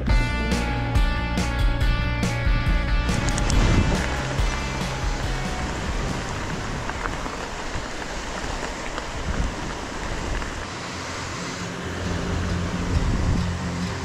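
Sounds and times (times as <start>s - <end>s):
music with steady bass line: 0.0s - 6.6s, 11.8s - 14.0s
wind on microphone: 3.0s - 10.7s, 12.6s - 13.7s
bike tyres crunching on gravel: 3.1s - 13.6s.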